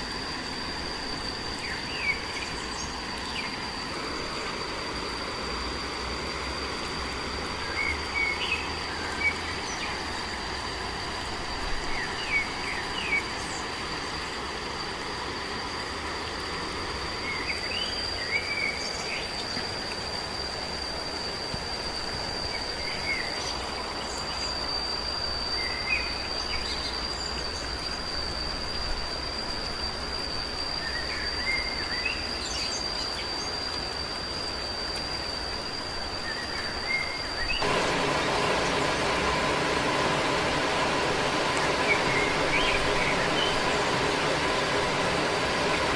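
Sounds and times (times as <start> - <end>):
insect drone: 0.0 - 45.9
light hiss: 0.0 - 45.9
bird chirps: 36.2 - 45.9.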